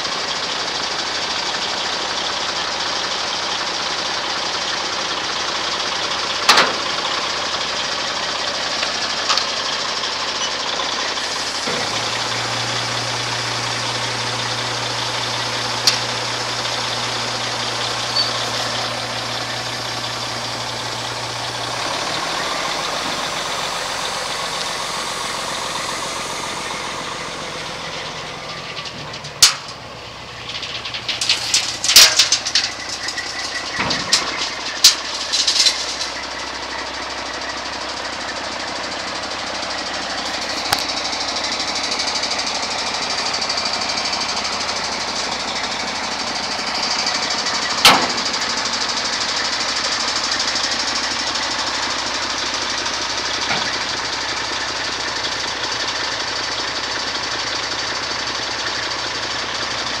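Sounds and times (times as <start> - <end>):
diesel truck engine idling: 0.0 - 60.0.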